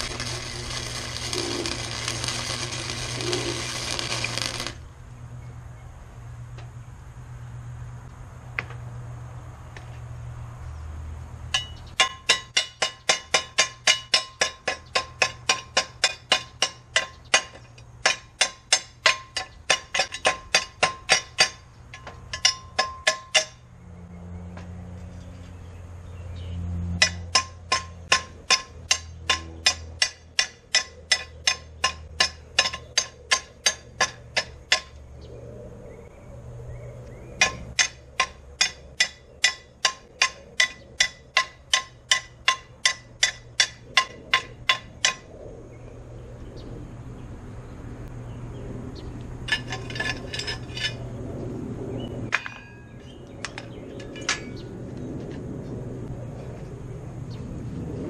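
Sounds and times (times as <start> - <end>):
hammer striking steel: 11.5 - 23.6, 27.0 - 35.0, 37.4 - 45.3, 52.3 - 54.6
metal clank: 11.5 - 23.6, 49.5 - 51.0, 52.3 - 54.7
metallic clatter: 49.4 - 51.0, 52.3 - 54.7.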